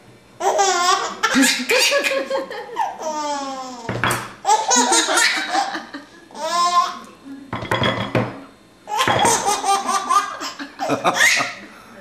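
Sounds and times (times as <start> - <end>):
baby laughing: 0.4 - 7.0, 8.9 - 11.6.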